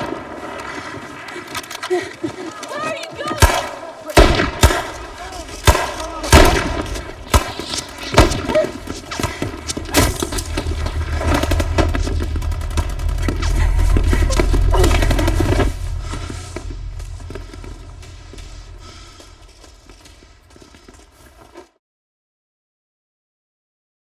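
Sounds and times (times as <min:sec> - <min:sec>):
rifle shots: 0:03.4 - 0:09.3
low rumble: 0:04.2 - 0:21.6.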